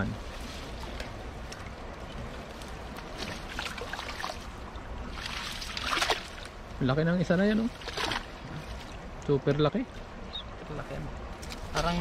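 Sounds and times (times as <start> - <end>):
river water rushing: 0.0 - 12.0
wet net rustling and dripping: 0.2 - 6.8, 7.6 - 9.2.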